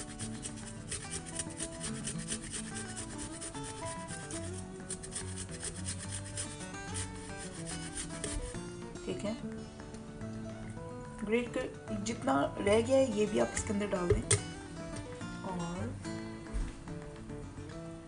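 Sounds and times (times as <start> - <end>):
ginger grating on metal grater: 0.0 - 8.6
soft background music: 0.0 - 18.0.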